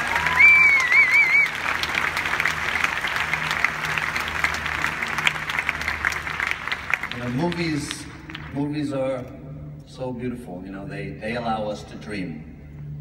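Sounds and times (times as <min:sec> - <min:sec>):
crowd applauding: 0:00.0 - 0:08.7.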